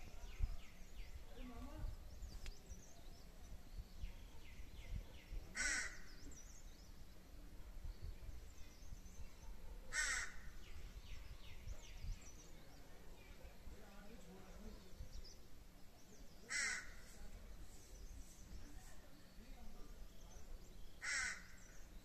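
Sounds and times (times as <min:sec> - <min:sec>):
small birds chirping: 0:00.0 - 0:22.0
crow cawing: 0:05.6 - 0:06.1, 0:09.9 - 0:10.5, 0:16.5 - 0:17.0, 0:21.0 - 0:21.6.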